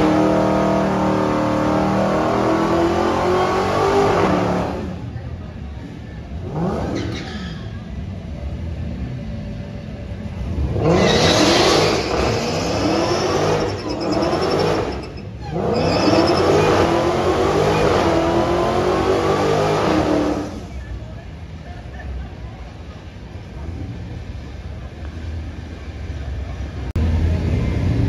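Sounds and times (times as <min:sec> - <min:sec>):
car engine revving in burnout: 0:00.0 - 0:05.1, 0:10.5 - 0:20.7.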